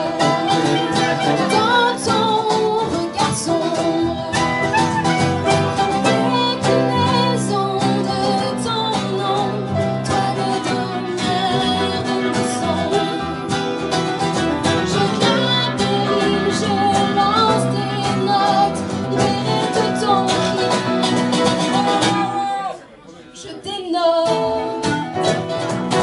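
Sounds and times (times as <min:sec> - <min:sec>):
clarinet: 0:00.0 - 0:02.6, 0:04.1 - 0:07.4
electric bass: 0:00.0 - 0:22.3
upright piano: 0:00.0 - 0:22.3
strummed acoustic guitar: 0:00.0 - 0:22.5, 0:24.2 - 0:26.0
woman singing: 0:00.0 - 0:22.8, 0:23.4 - 0:25.1.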